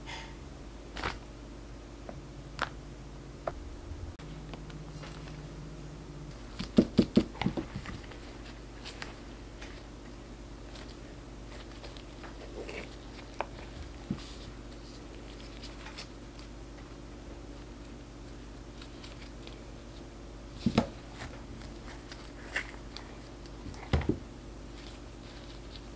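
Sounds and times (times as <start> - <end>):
steady low hum: 0.0 - 25.9.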